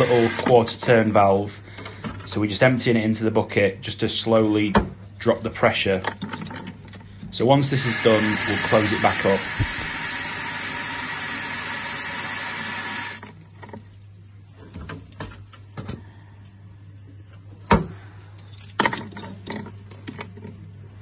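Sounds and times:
water jetting into bucket: 7.8s - 13.2s.

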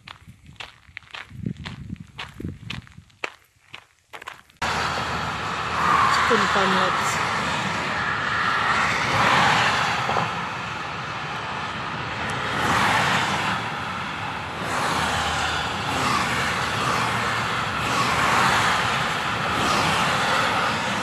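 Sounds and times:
traffic passing: 4.2s - 21.0s.

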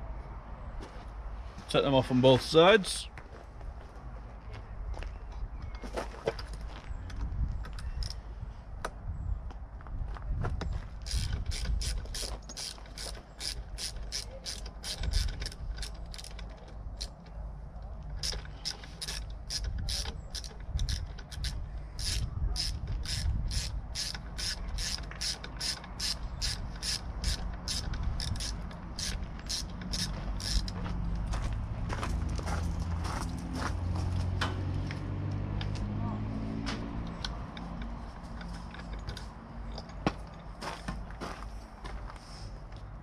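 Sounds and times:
hand ratchet clicking: 11.0s - 17.2s, 18.1s - 30.8s.

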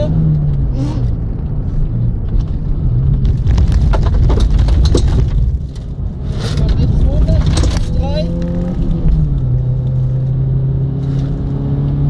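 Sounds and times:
car engine pulling hard: 0.0s - 12.0s
gravel clattering against car underside: 1.3s - 9.6s.

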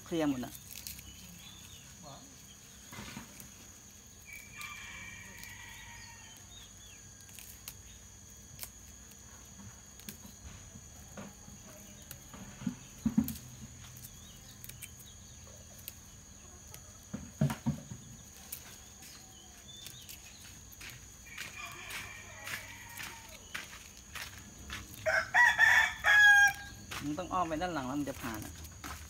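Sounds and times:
high insect trill: 0.0s - 29.0s
leaves snapped off by hand: 0.5s - 1.8s.

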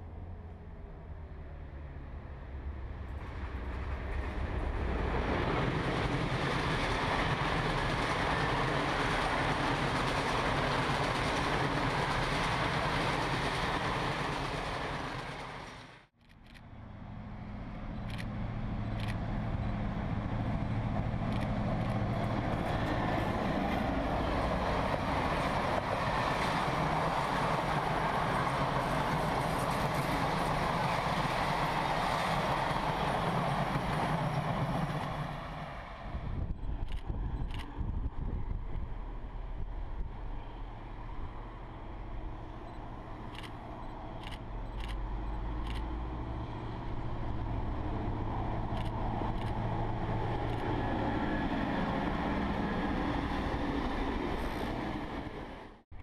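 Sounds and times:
diesel locomotive engine hum: 0.0s - 56.0s
train coaches rolling: 3.3s - 16.0s, 17.9s - 36.0s.

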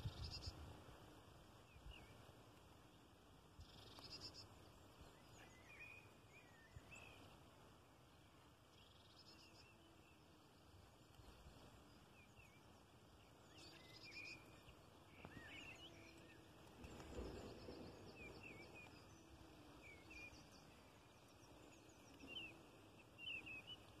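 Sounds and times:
small birds chirping: 0.0s - 0.6s, 1.6s - 24.0s
low steady noise floor: 0.0s - 24.0s
soft low rustle: 10.9s - 23.3s.

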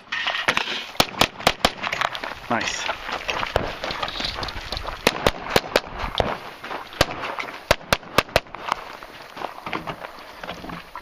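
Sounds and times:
gunshots with short echo: 5.0s - 6.4s, 7.0s - 8.5s.

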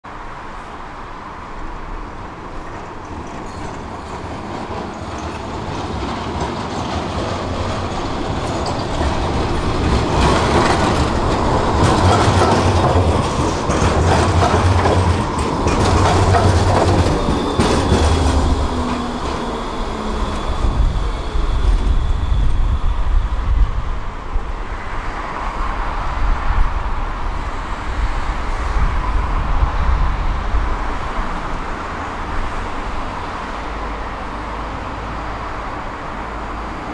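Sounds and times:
tram wheels clattering on rails: 1.7s - 36.9s
tram motor whine: 3.6s - 24.1s.

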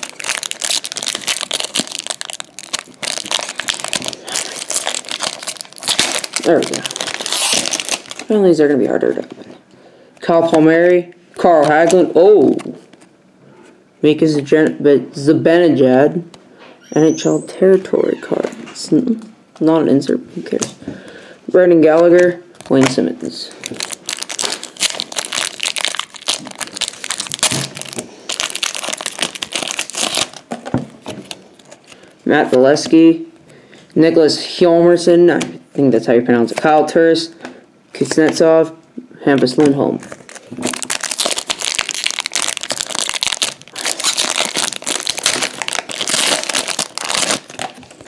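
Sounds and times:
foil wrapper crinkling and tearing: 0.0s - 9.3s, 22.6s - 32.1s, 40.0s - 48.0s.

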